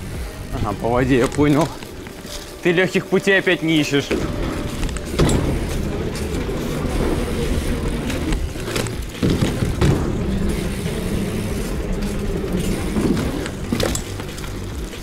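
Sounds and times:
bicycle tyres rolling on wood: 0.0s - 15.0s
wheels knocking on boards: 4.0s - 15.0s.

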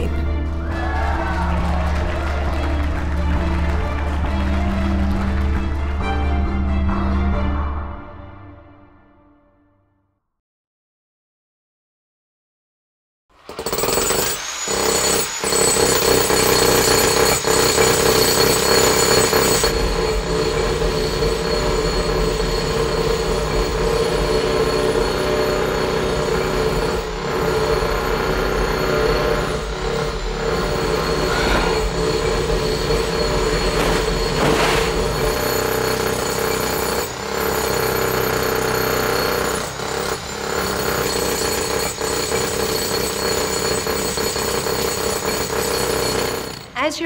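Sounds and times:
jackhammer hammering: 13.3s - 47.0s
steady drone: 29.6s - 35.7s.

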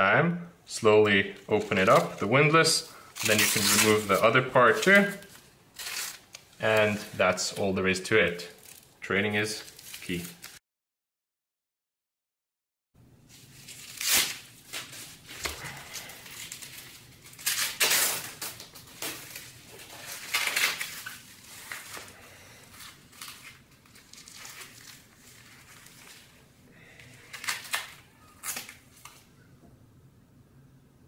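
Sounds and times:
velcro ripping: 3.2s - 7.0s, 8.5s - 8.9s, 13.5s - 22.1s, 22.7s - 26.4s, 27.2s - 29.2s.

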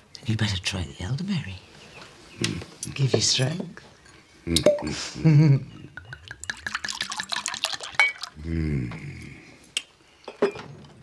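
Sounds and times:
person laughing: 4.6s - 5.8s
wine pouring into a glass: 5.7s - 8.5s.

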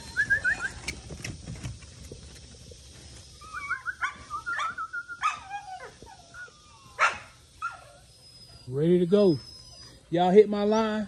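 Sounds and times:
puppies whining and yipping: 0.0s - 1.0s, 3.1s - 11.0s.

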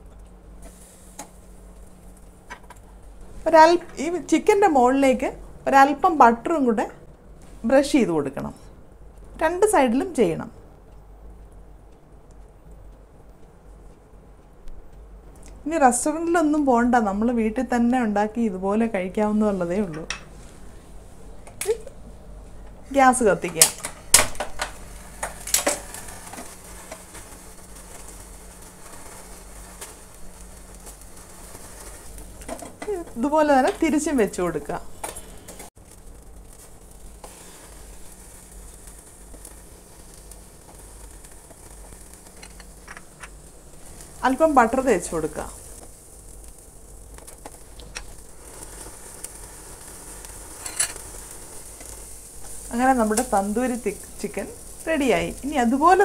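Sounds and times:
gas flame hissing: 0.0s - 56.0s.

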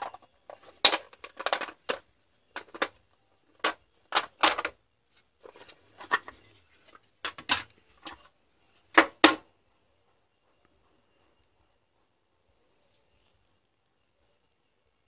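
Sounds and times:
soft rustle: 5.0s - 8.9s.

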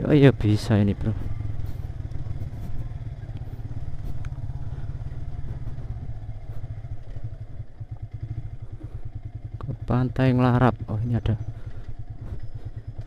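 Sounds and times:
motorcycle engine at low revs: 0.0s - 13.0s.

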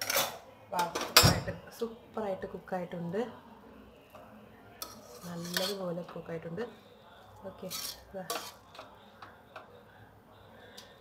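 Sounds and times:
spoon scraping metal pot: 4.8s - 6.2s, 7.6s - 8.9s.

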